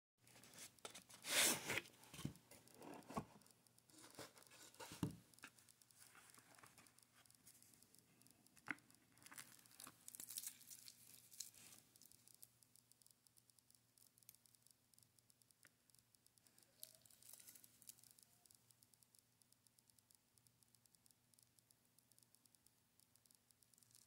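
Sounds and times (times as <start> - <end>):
cardboard sleeve scraping rustle: 1.2 - 1.9.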